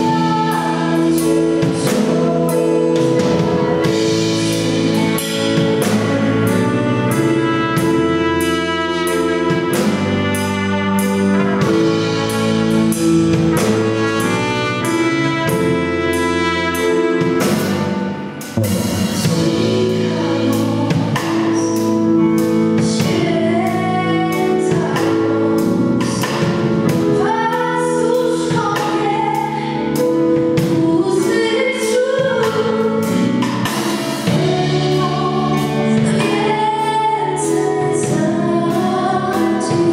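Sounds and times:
woman singing into microphone: 0:00.0 - 0:06.1, 0:22.8 - 0:26.3, 0:26.9 - 0:33.3, 0:34.2 - 0:39.9
live band with trumpet: 0:00.0 - 0:39.9
steady drum beat: 0:00.0 - 0:39.9.

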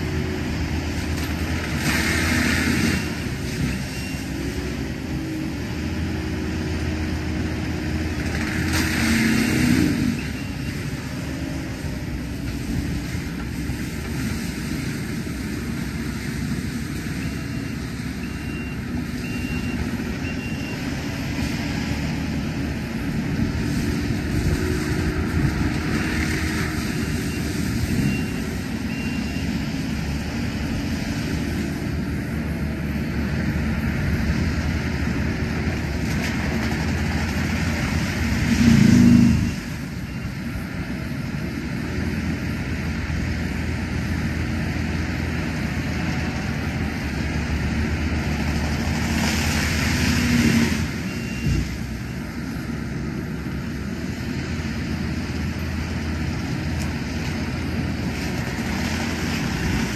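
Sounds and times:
heavy machine engine drone: 0:00.0 - 0:59.9.

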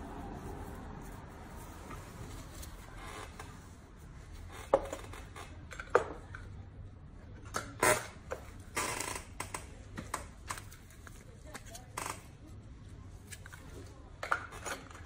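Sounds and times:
rustling: 0:00.0 - 0:04.6.

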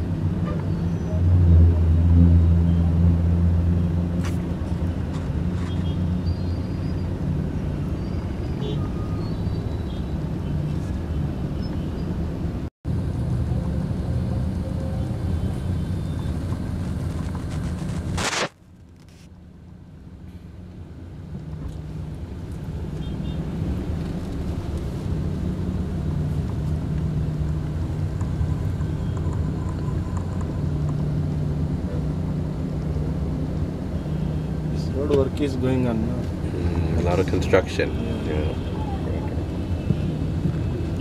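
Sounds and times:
surrounding traffic: 0:00.0 - 0:41.0
car engine humming: 0:19.7 - 0:41.0.

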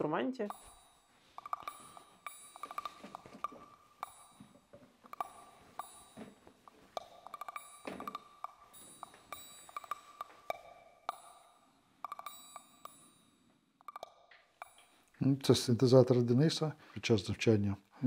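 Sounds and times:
faint held tone: 0:00.0 - 0:15.2
light bell-like music notes: 0:00.0 - 0:16.0.

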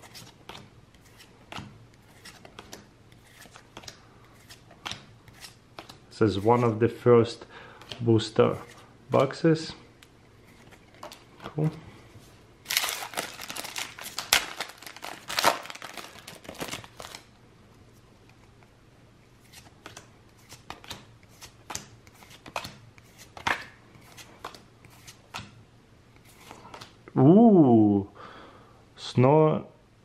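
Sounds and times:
cards being handled and flipped: 0:00.0 - 0:06.9, 0:07.8 - 0:18.7, 0:19.3 - 0:27.0
foil wrapper crinkling and tearing: 0:12.7 - 0:17.3.

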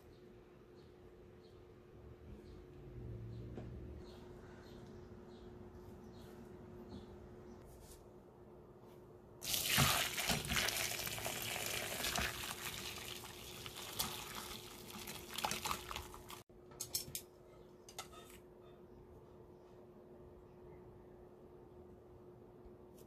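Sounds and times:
broth pouring through strainer: 0:09.4 - 0:16.4.

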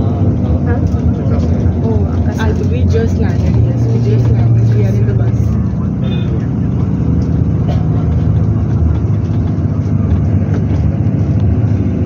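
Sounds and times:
bus engine rumble: 0:00.0 - 0:12.0.

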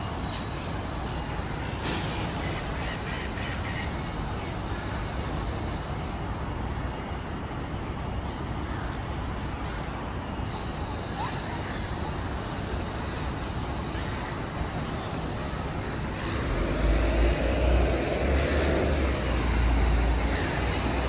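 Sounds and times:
city street traffic: 0:00.0 - 0:21.0
heavy vehicle passing rumble: 0:15.1 - 0:21.0.

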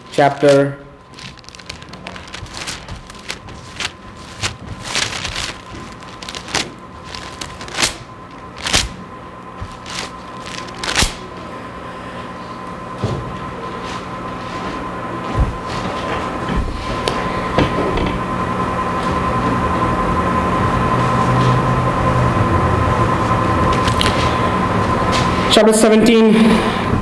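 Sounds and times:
electrical hum: 0:00.0 - 0:27.0
thin pages turning and rustling: 0:00.5 - 0:09.0, 0:09.6 - 0:11.2, 0:23.7 - 0:24.4.

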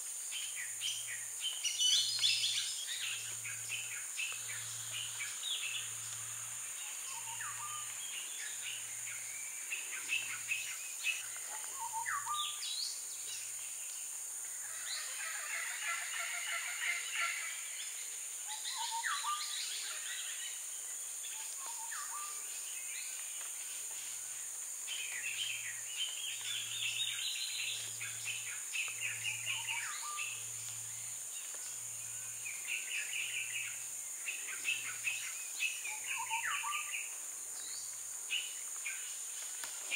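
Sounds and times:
steady high hiss: 0:00.0 - 0:39.9
birds chirping and whistling: 0:06.8 - 0:12.6, 0:18.6 - 0:19.8, 0:24.9 - 0:31.1, 0:32.4 - 0:37.0.

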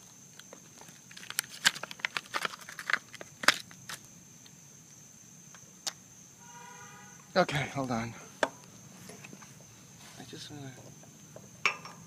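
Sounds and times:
plastic packaging crinkling: 0:00.3 - 0:04.0.

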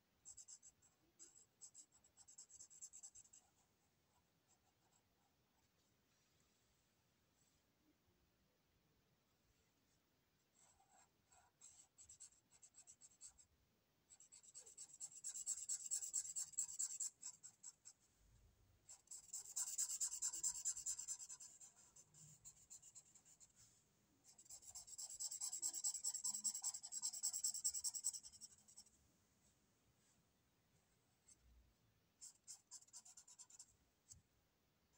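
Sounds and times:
marker scribbling on paper: 0:14.1 - 0:18.0, 0:18.9 - 0:23.7, 0:24.3 - 0:28.9, 0:32.2 - 0:33.7.

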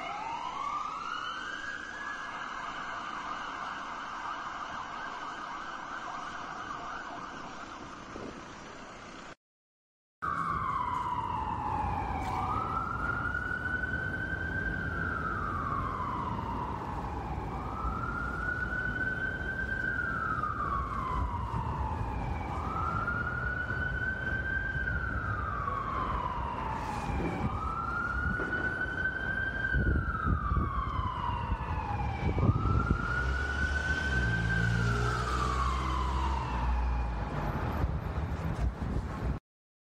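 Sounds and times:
ambulance wail siren: 0:00.0 - 0:08.2, 0:10.2 - 0:37.9
ambulance siren steady tone: 0:00.0 - 0:08.5, 0:10.2 - 0:38.0
low rumble of traffic: 0:10.2 - 0:39.4.

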